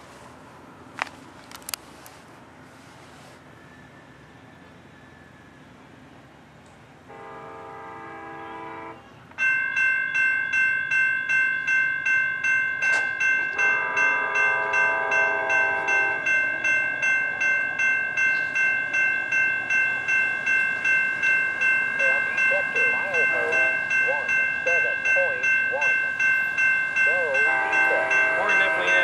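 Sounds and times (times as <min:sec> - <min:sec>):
train air horn blasts: 0:07.1 - 0:09.1, 0:13.6 - 0:16.7, 0:27.3 - 0:29.0
crossing bell ringing: 0:07.1 - 0:29.0.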